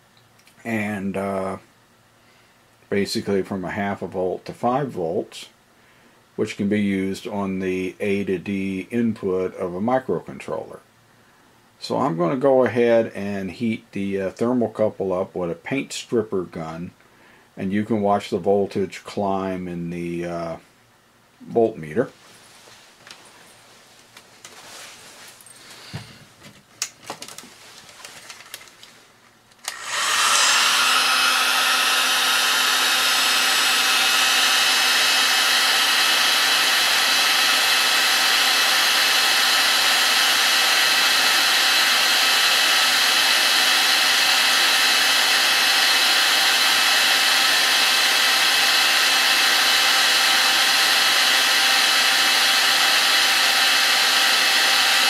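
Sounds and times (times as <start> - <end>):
heat gun blowing air: 29.6 - 55.0.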